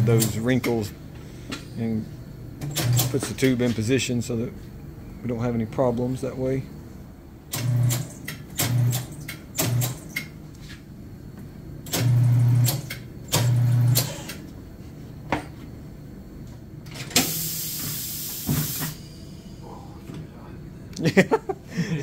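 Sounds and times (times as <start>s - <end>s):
compressed air hissing: 17.2s - 19.9s.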